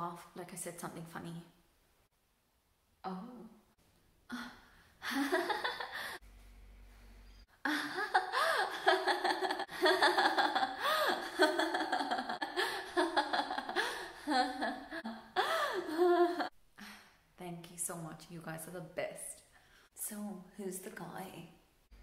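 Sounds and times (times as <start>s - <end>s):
woman laughing: 5.0s - 6.2s, 7.6s - 16.5s.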